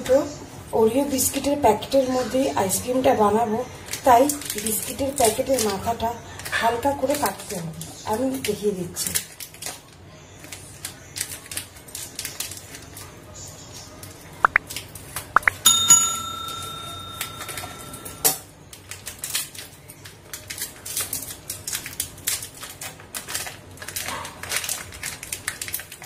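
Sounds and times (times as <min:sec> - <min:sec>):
plastic wrappers crinkling: 0:03.4 - 0:13.4, 0:18.6 - 0:26.0
bell chime: 0:15.6 - 0:18.2.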